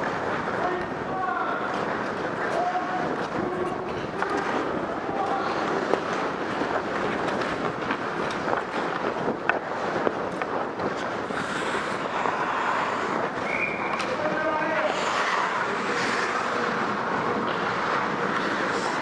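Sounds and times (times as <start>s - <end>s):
skate blades scraping on ice: 5.4s - 19.0s.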